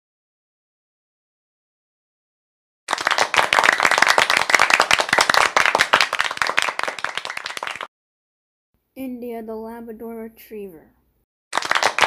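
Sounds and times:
audience applauding: 2.9 - 7.9, 11.6 - 12.0.

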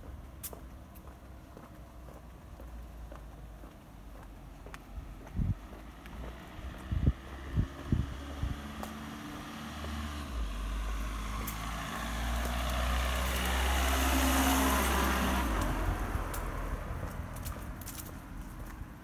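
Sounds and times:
vehicle driving past: 5.5 - 18.0.

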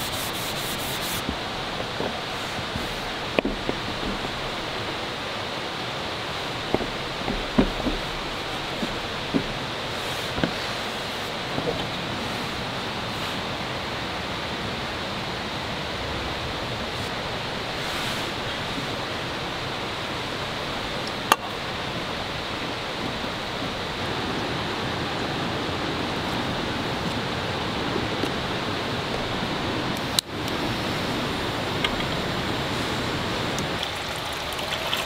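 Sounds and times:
gas stove burner hissing: 0.0 - 13.6.

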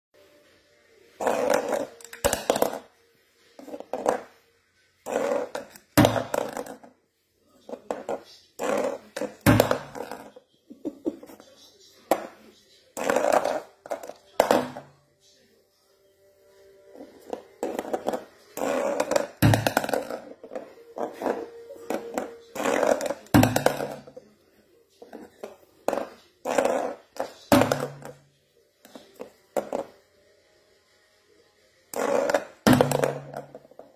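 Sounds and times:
plastic cup knocking on wooden floor: 1.2 - 2.9, 3.6 - 4.4, 5.0 - 6.9, 7.7 - 10.3, 13.0 - 14.9, 17.2 - 24.2, 25.0 - 28.2, 28.9 - 30.0, 32.0 - 33.9.

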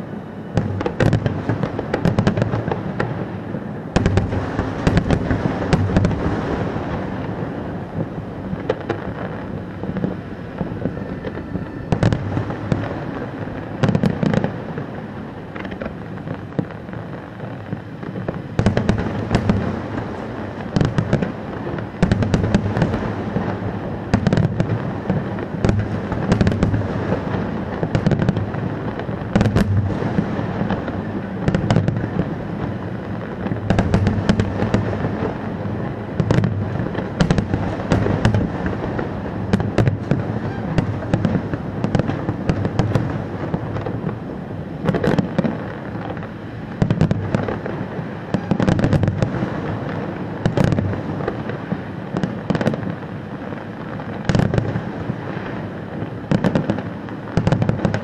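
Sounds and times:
fireworks bangs and crackles: 0.0 - 58.0.

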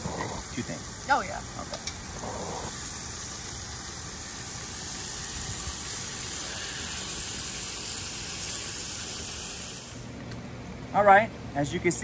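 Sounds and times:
meat sizzling in a pot: 0.7 - 10.1.

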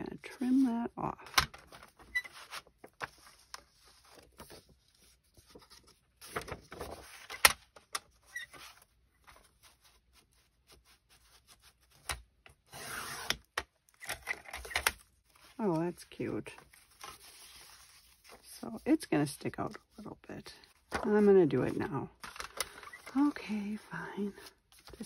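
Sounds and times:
paper sheets sliding: 16.7 - 18.5.

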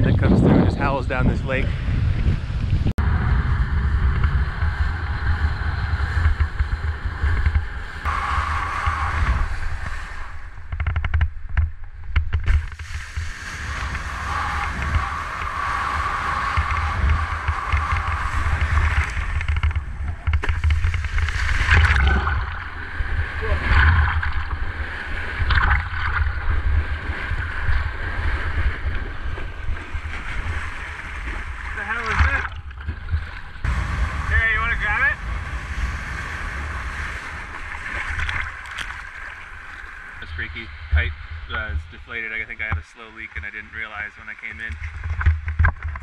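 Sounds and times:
wind buffeting microphone: 0.0 - 46.0
board splashing on water: 4.1 - 40.2
rush of spray: 8.0 - 10.7, 12.5 - 19.8.

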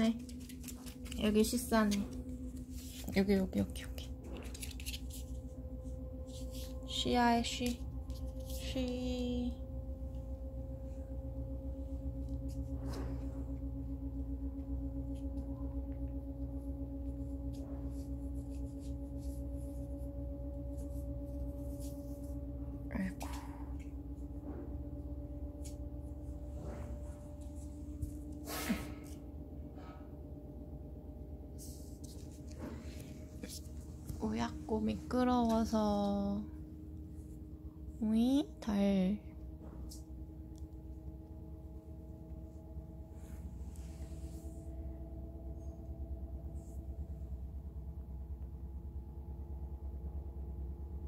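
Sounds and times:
faint held tones: 0.0 - 48.3
electrical hum: 0.0 - 51.0.

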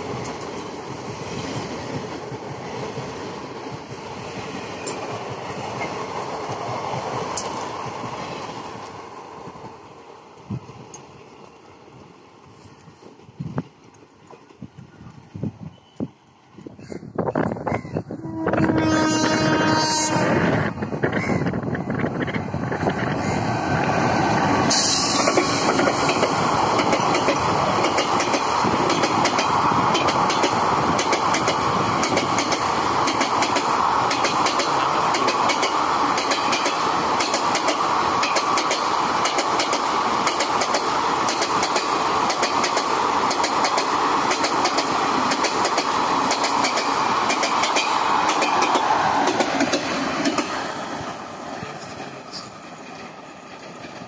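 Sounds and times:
train rushing noise: 0.0 - 54.0
train wheels clattering over rail joints: 24.5 - 50.6.

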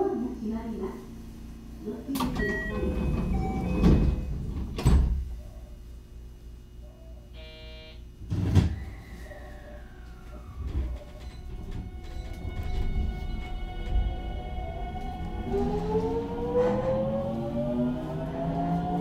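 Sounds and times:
sliding train doors thumping: 2.2 - 5.4, 10.5 - 19.0
low steady rumble: 9.8 - 18.4.

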